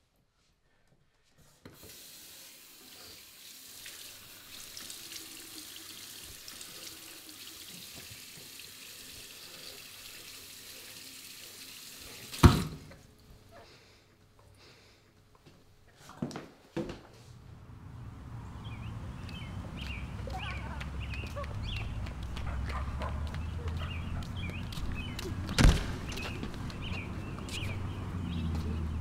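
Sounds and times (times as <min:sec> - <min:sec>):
tap running into sink: 0:07.6 - 0:08.6, 0:12.2 - 0:12.8.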